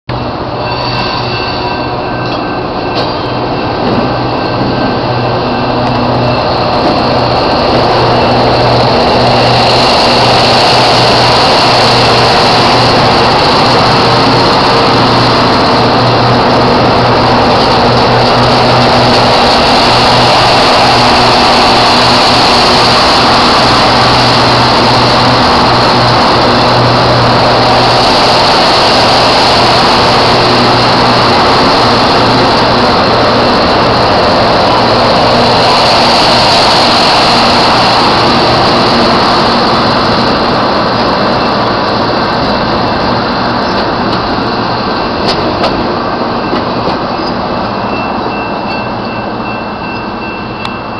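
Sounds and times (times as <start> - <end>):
rail grinder train rumbling past: 0.1 - 50.9.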